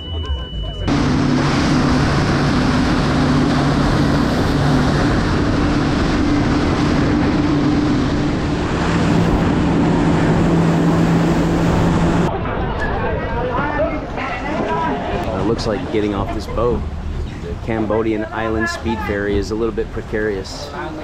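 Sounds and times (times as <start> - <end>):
ferry engine drone: 0.0 - 13.2, 14.8 - 21.0
wind: 0.0 - 21.0
water spray rushing along hull: 0.9 - 12.3.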